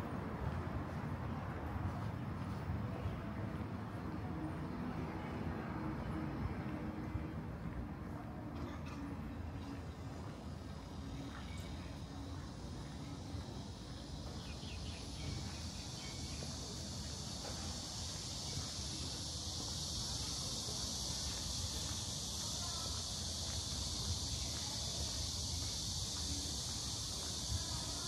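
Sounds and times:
insects buzzing: 8.4 - 28.0.

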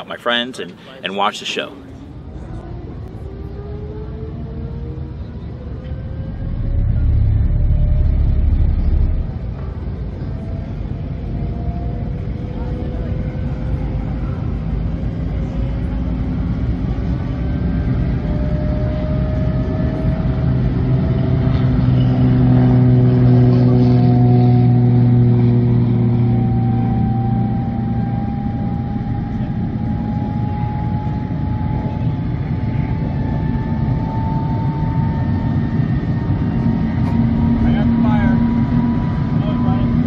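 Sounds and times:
jet engine spooling up: 5.0 - 11.4, 23.9 - 40.0.

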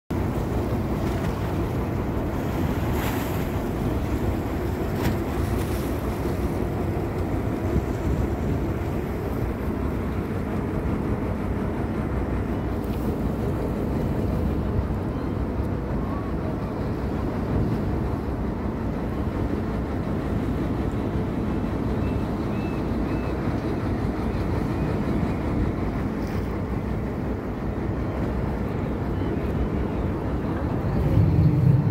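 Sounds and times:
boat motor drone: 0.1 - 31.9
water rushing past hull: 0.1 - 31.9
wind buffeting microphone: 23.8 - 31.9.

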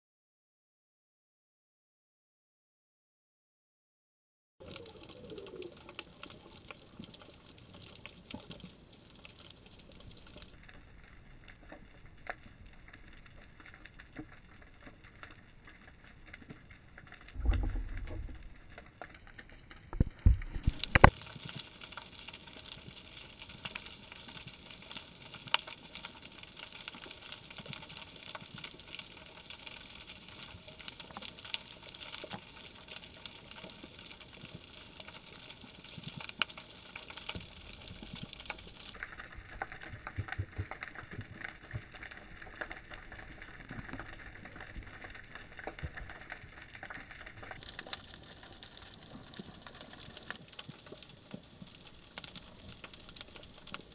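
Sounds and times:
underwater clicking crackle: 4.6 - 53.9
low rumble: 17.3 - 18.8.

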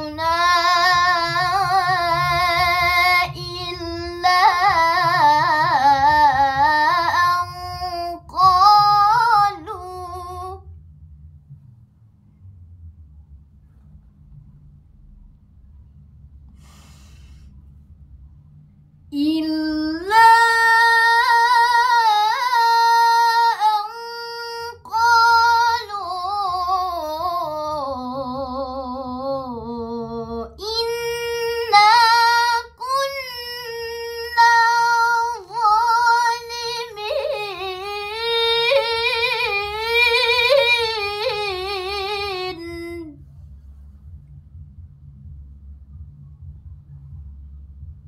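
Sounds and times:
girl reciting melodically: 0.0 - 10.6, 19.2 - 43.2
short breaths: 16.5 - 17.7.

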